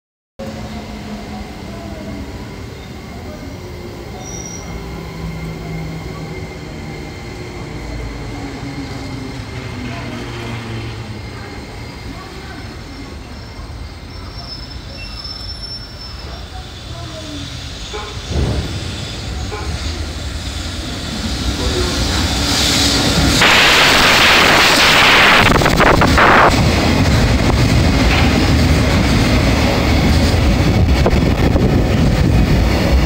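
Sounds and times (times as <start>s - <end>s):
train rail rumble: 0.4s - 33.0s
wheel squeals: 4.1s - 19.9s.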